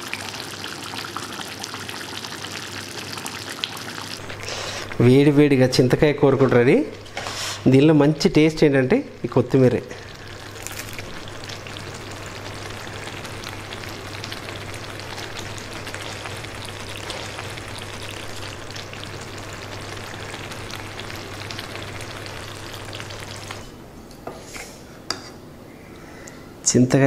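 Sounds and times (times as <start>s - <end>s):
curry simmering and sizzling: 0.0s - 5.3s, 9.1s - 23.8s.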